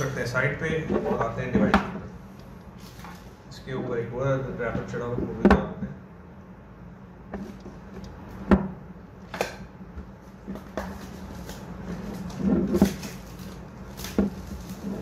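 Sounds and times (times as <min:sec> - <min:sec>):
plastic wrap rustling clicks: 0:10.5 - 0:15.0.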